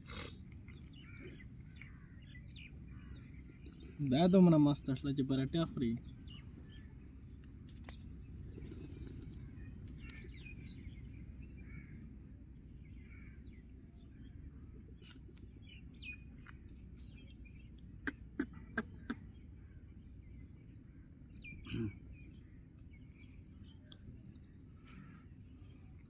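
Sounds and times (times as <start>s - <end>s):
low outdoor rumble: 0.0s - 26.0s
small birds chirping faintly: 0.0s - 26.0s.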